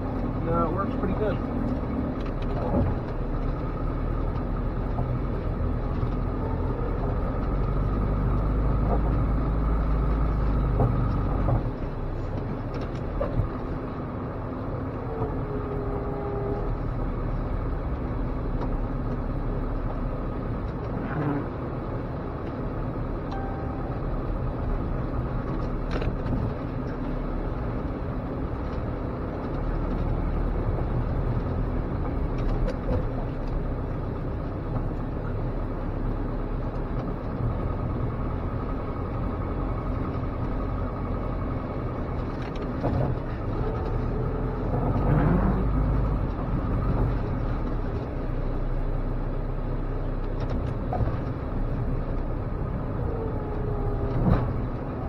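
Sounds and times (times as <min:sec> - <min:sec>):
truck engine running: 0:00.0 - 0:55.0
knocks and rattles in cab: 0:00.9 - 0:03.3.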